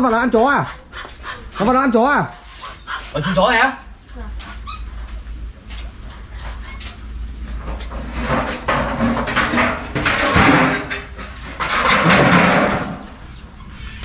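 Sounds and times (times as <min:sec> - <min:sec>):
metal sheet scraping: 0:07.6 - 0:13.2.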